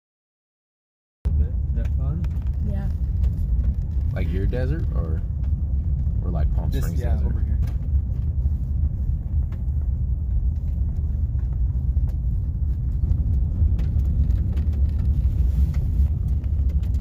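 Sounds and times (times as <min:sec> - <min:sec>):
tyres on snowy road: 0:01.3 - 0:17.0
vehicle engine rumble: 0:01.3 - 0:17.0.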